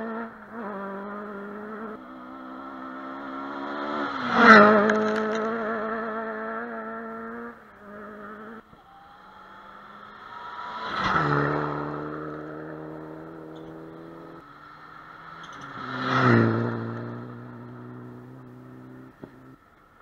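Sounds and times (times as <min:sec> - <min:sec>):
rally cars racing past: 0:00.0 - 0:20.0.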